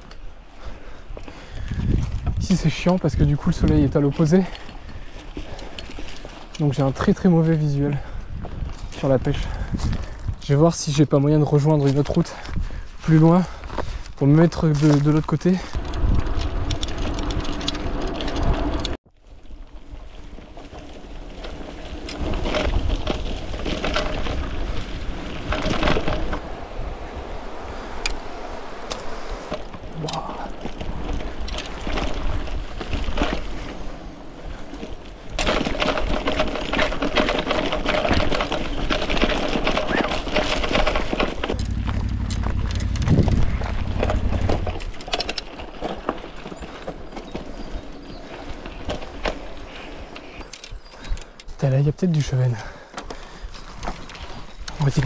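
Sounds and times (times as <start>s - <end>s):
bicycle rattling and clicking: 0.0s - 10.5s, 12.0s - 19.0s, 19.6s - 26.9s, 27.6s - 55.0s
wind buffeting microphone: 1.1s - 6.2s, 7.1s - 10.6s, 15.7s - 19.0s, 37.3s - 51.4s
wind rumble on microphone: 1.4s - 5.6s, 7.0s - 10.6s, 15.7s - 19.0s, 19.6s - 46.4s
sharp clicks and rattles: 35.3s - 46.2s.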